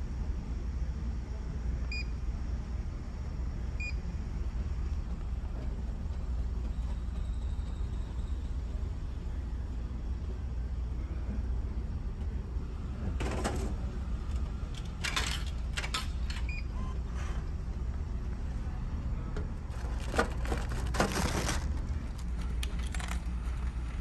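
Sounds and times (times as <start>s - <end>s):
coins clicking into vending machine: 14.7s - 16.6s, 19.8s - 23.7s
item clattering into delivery door: 19.7s - 21.8s.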